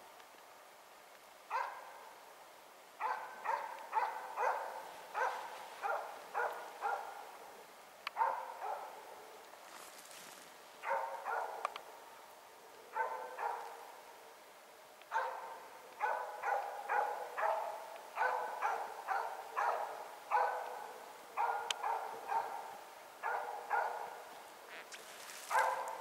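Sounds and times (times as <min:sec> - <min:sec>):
dog barking quickly: 0:01.5 - 0:01.8, 0:03.0 - 0:07.2, 0:08.2 - 0:09.0, 0:10.8 - 0:11.7, 0:13.0 - 0:13.8, 0:15.1 - 0:20.8, 0:21.4 - 0:24.2, 0:25.4 - 0:26.0.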